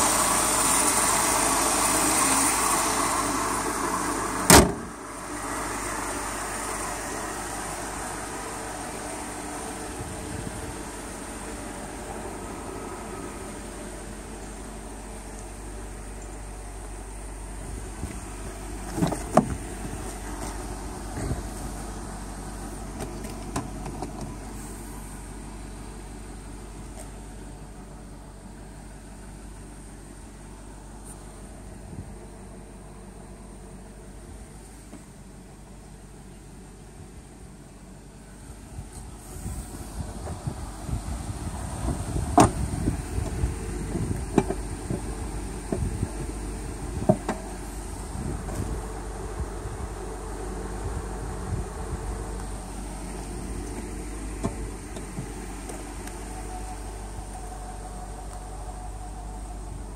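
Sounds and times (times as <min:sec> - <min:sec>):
car engine idling: 0:00.0 - 0:59.9
car door shutting: 0:04.1 - 0:05.0, 0:18.8 - 0:21.6, 0:22.9 - 0:24.7, 0:41.9 - 0:46.1, 0:52.9 - 0:58.5.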